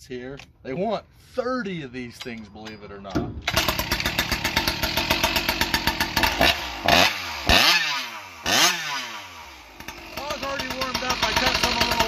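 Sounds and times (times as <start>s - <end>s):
chainsaw cutting log: 3.5s - 12.0s.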